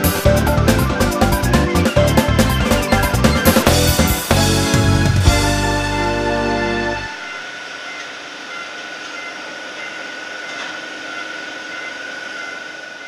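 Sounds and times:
high steady engine whine: 5.7 - 13.0.

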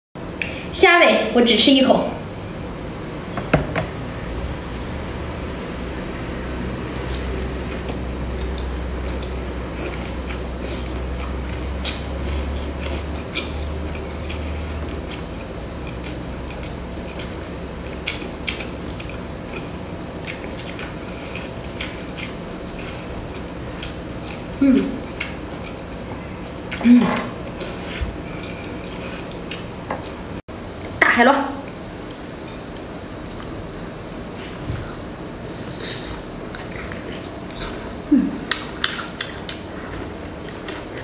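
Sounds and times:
steady low hum: 0.2 - 41.0
person humming: 38.1 - 38.5.

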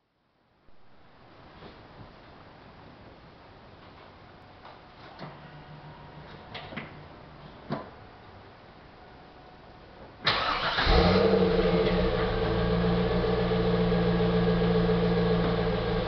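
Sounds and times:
car engine starting and idling: 10.2 - 16.0.

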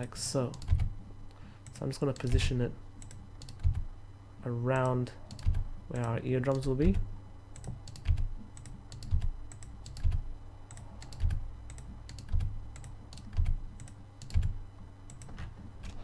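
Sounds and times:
low steady hum: 0.0 - 16.0
keyboard and mouse clicking: 0.5 - 0.9, 3.0 - 3.8, 7.6 - 16.0.

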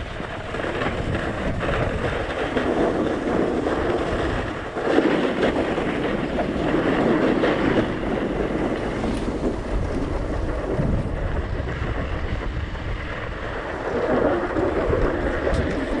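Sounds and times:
snowboard scraping over snow: 0.0 - 16.0
wind buffeting microphone: 0.0 - 16.0.

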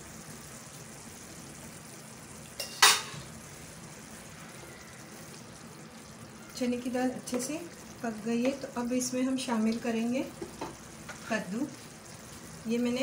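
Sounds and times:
gravy sizzling in a pan: 0.0 - 13.0
spatula clanking on pan: 2.6 - 3.2.

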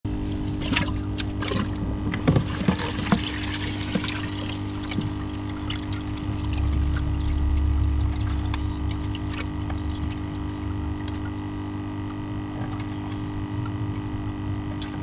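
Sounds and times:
aquarium air pump humming: 0.1 - 15.0
water splashing and dripping: 0.6 - 11.4.

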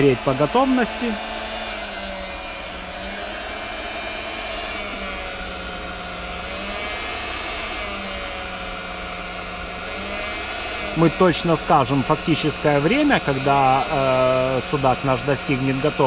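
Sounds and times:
blower whirring: 0.0 - 16.0
high drifting tone: 0.0 - 16.0.

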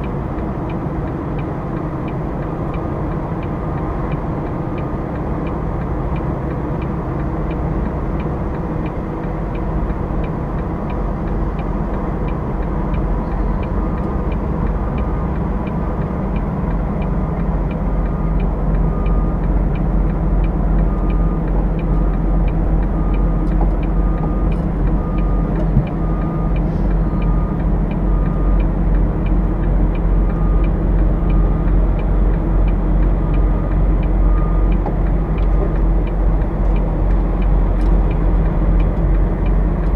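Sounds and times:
diesel truck engine running: 0.0 - 39.9
reverse warning beeps: 17.0 - 37.0.

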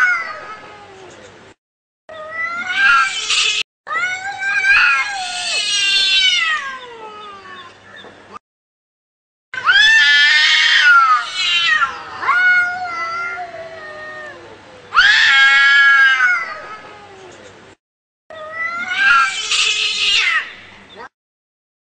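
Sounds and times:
cat yowling: 2.1 - 7.8, 9.6 - 17.3, 18.3 - 20.6.

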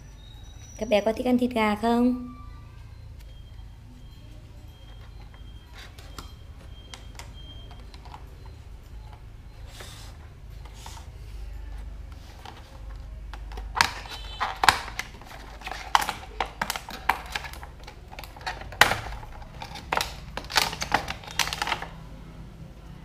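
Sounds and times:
plastic packaging rustling: 9.7 - 22.0
plastic toy pieces clicking: 13.3 - 22.0.

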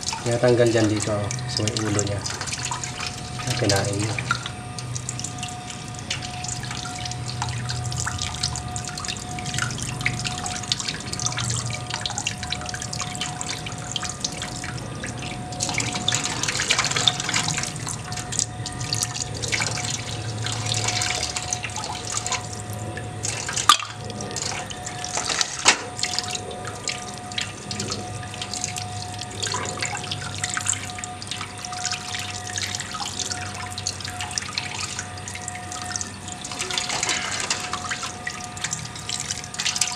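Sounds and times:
tap water splashing over hands: 0.0 - 5.4, 23.2 - 26.3.

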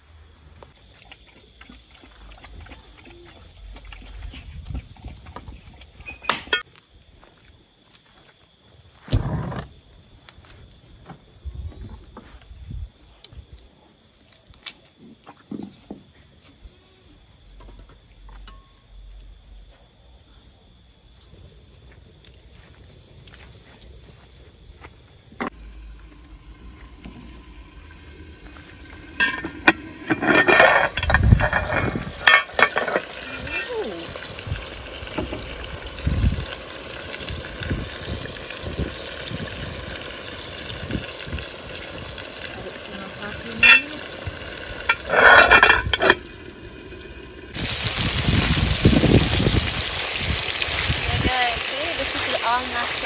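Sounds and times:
chicken sizzling in a pot: 25.5 - 53.0
metal spoon scraping a pot: 28.7 - 33.2, 43.6 - 44.1, 44.8 - 47.0
metal clatter: 29.1 - 33.1, 44.9 - 46.3.

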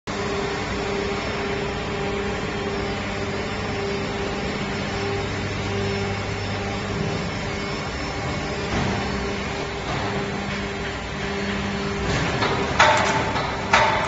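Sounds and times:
machinery humming and whirring: 0.1 - 14.0
machine knock: 8.6 - 14.0.

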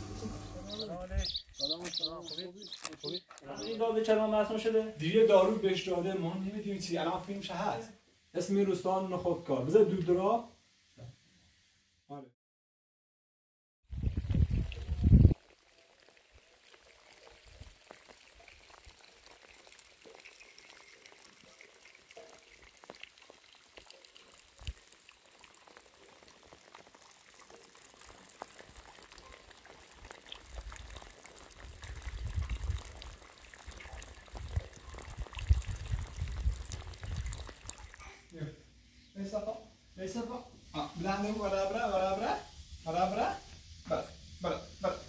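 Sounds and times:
rain falling: 15.4 - 38.0.

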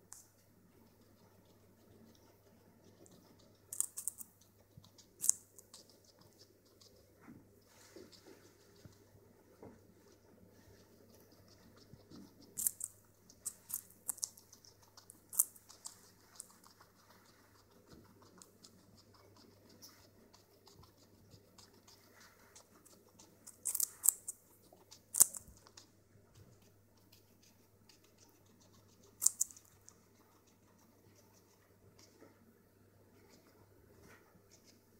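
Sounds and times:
guinea pig crunching carrot: 0.0 - 32.3.

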